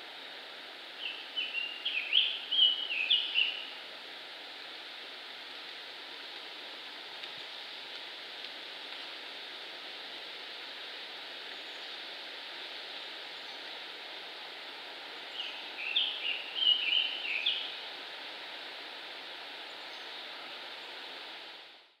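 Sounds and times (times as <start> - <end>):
outdoor background hiss: 0.0 - 22.0.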